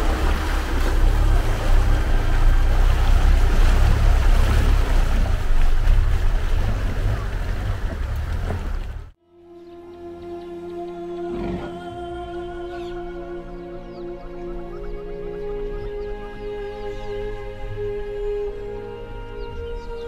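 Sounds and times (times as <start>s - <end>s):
water churning and splashing: 0.0s - 9.2s.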